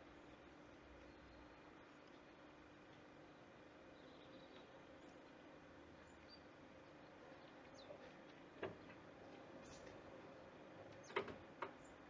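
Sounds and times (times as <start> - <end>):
faint high bird chirps: 3.9 - 5.3, 6.0 - 8.0, 9.6 - 9.9, 11.0 - 12.0
birds tapping on wooden feeder: 7.5 - 10.1, 10.8 - 12.0.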